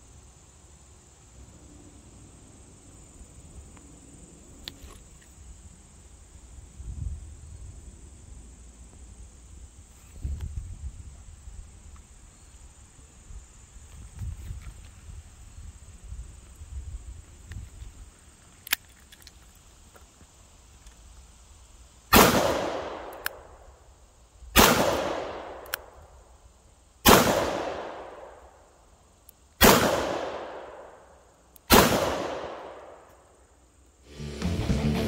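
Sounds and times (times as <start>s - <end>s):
revolver gunshots with echo: 22.1s - 23.2s, 24.6s - 25.6s, 27.0s - 28.3s, 29.6s - 30.9s, 31.7s - 32.9s.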